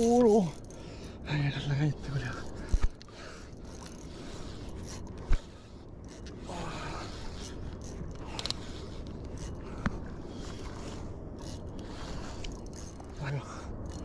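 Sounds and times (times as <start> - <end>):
fishing reel whirring: 0.0 - 14.0
wind and water rumble: 0.0 - 14.0.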